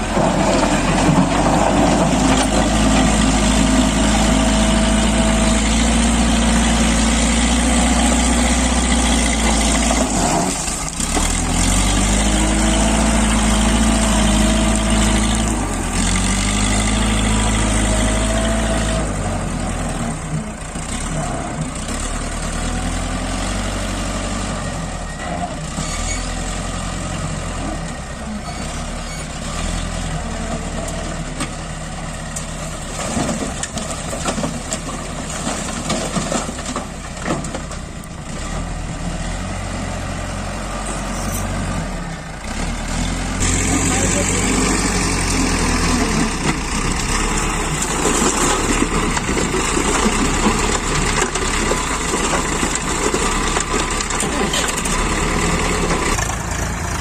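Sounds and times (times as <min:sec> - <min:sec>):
bucket scooping rock: 0:00.0 - 0:03.8
diesel engine under load: 0:00.0 - 0:57.0.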